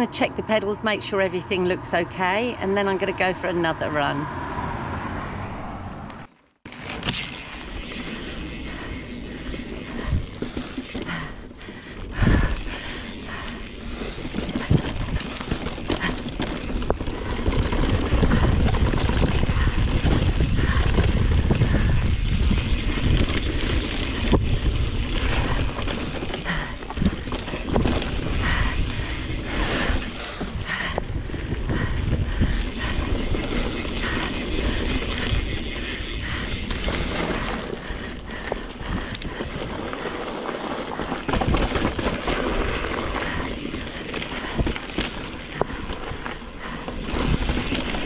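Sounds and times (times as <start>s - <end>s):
bike rattling and knocking: 6.6s - 48.0s
tyres rumbling over dirt: 6.6s - 48.0s
wind on microphone: 14.2s - 39.8s.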